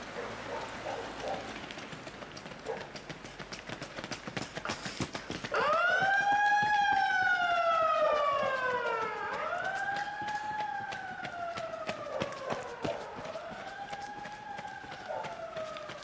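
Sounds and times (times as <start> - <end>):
siren wailing: 5.5 - 16.0.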